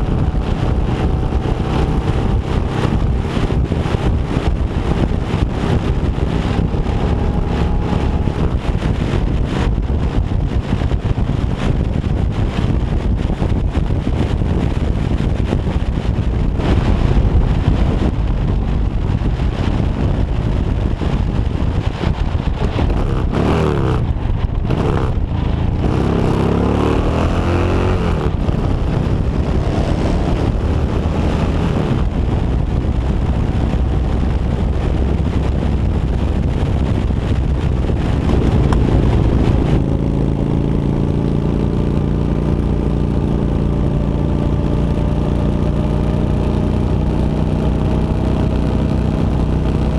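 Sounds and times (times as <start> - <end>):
motorcycle engine running: 0.0 - 49.9
wind noise on microphone: 0.0 - 49.9.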